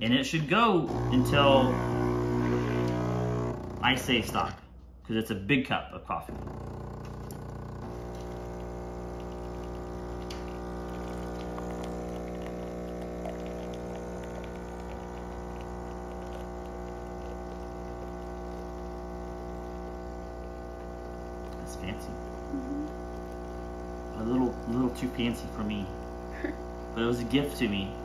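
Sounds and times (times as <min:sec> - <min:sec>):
espresso machine pump humming: 0:00.8 - 0:04.4, 0:06.3 - 0:28.0
coffee streaming into mug: 0:06.4 - 0:28.0.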